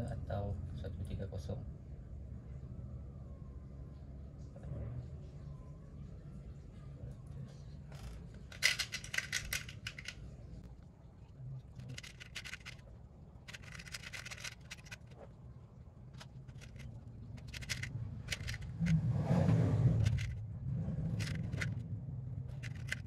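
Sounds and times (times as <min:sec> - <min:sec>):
steady low hum: 0:00.0 - 0:23.0
small metal parts clicking: 0:07.9 - 0:10.2, 0:11.8 - 0:12.8, 0:13.4 - 0:15.2, 0:16.1 - 0:19.0, 0:20.0 - 0:20.4, 0:21.1 - 0:21.8, 0:22.5 - 0:23.0.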